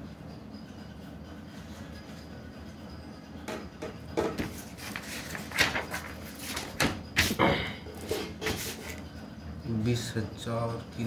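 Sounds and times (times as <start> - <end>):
paper rustling and crackling: 4.5 - 7.4.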